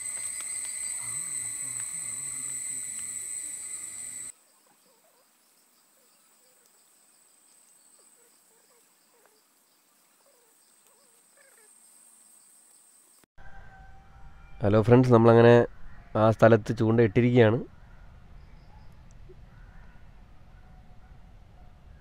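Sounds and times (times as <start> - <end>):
cicadas shrilling: 0.0 - 4.4.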